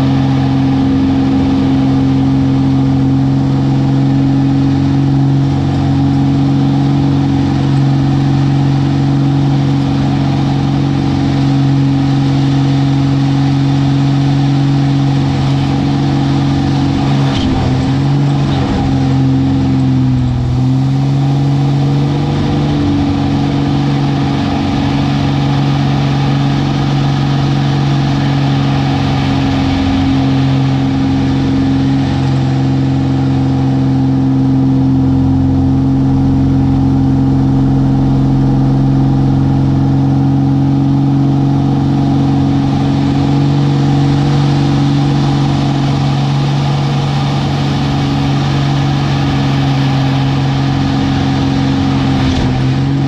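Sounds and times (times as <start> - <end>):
airplane engine droning: 0.0 - 53.0.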